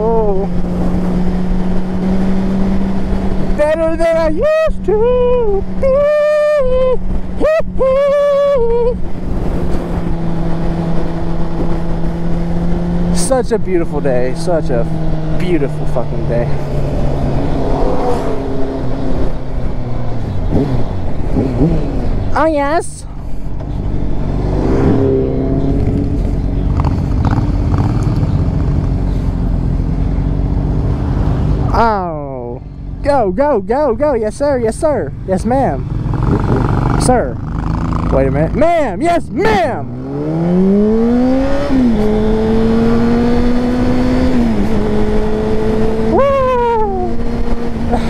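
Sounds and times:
motorcycle engines running: 0.0s - 48.0s
person yelling: 3.6s - 9.0s, 38.6s - 39.9s, 46.0s - 47.3s
wind rush: 14.8s - 22.4s, 23.1s - 29.9s, 35.8s - 38.1s
wind rumble on microphone: 35.8s - 38.6s.

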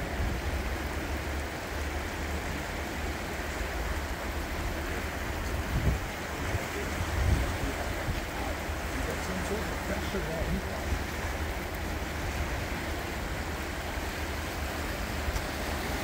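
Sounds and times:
river water rushing: 0.0s - 16.0s
wind buffeting microphone: 4.6s - 16.0s.

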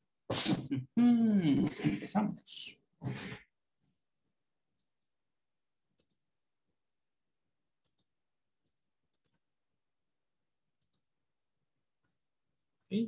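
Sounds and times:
computer mouse clicks: 6.0s - 6.3s, 7.8s - 8.2s, 9.1s - 9.4s, 10.8s - 11.1s.

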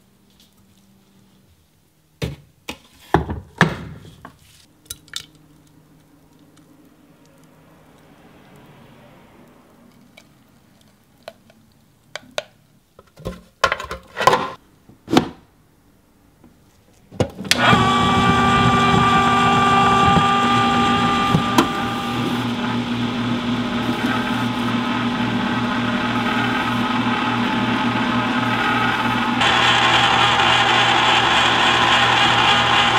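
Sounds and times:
ice cream maker motor whine: 17.5s - 32.9s.

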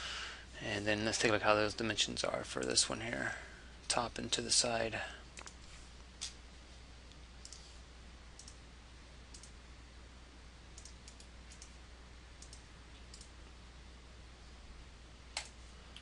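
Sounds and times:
low steady hum: 0.0s - 16.0s
computer mouse clicks: 5.4s - 5.6s, 7.4s - 7.7s, 8.4s - 8.6s, 9.3s - 9.6s, 10.8s - 11.8s, 12.4s - 13.4s, 15.3s - 16.0s.

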